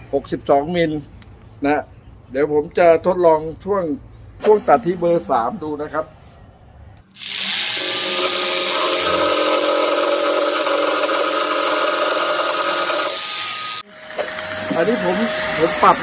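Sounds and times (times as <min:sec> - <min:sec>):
jigsaw cutting wood: 0:07.2 - 0:13.8.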